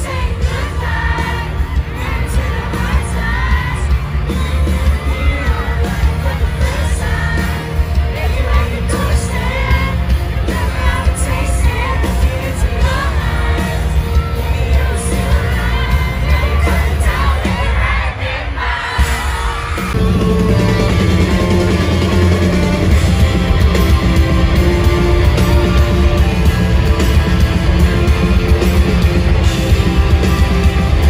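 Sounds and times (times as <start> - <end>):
person singing into a microphone: 0.0 - 17.7
bass guitar: 0.0 - 18.0, 19.0 - 31.0
crowd singing and shouting: 0.0 - 31.0
drums: 0.0 - 31.0.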